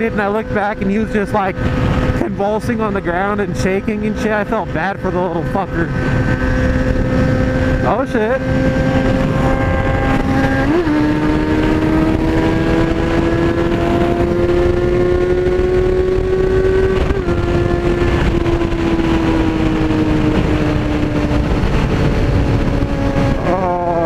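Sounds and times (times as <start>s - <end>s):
motorcycle engine at high revs: 0.0s - 24.0s
wind rushing: 1.0s - 24.0s.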